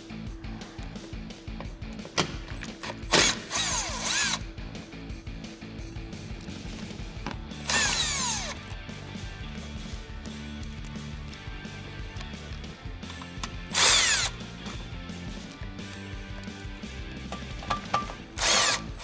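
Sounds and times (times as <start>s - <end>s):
power driver motor whine: 3.0s - 4.5s, 7.6s - 8.8s, 13.3s - 14.5s, 18.4s - 19.0s.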